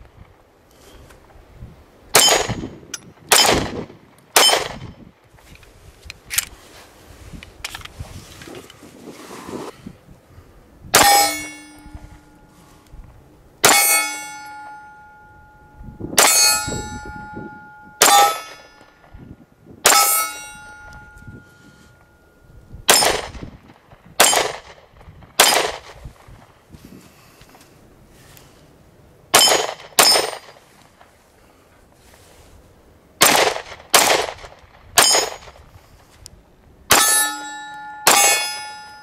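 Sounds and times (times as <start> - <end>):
pistol shots: 2.2 - 2.6, 3.3 - 4.8, 22.9 - 23.4, 24.2 - 24.8, 25.4 - 26.0, 29.3 - 30.5, 33.2 - 35.5
steel target ringing: 2.2 - 3.6, 11.0 - 12.8, 13.6 - 19.0, 19.8 - 23.2, 29.4 - 30.5, 35.0 - 35.5, 36.9 - 39.0.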